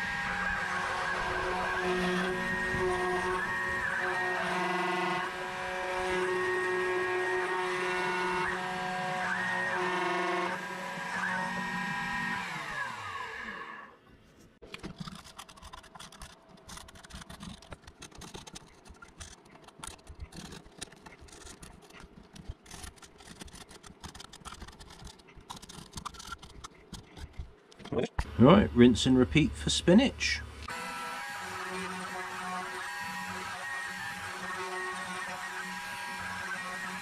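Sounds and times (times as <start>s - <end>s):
router spindle motor whine: 0.0s - 14.0s, 30.3s - 37.0s.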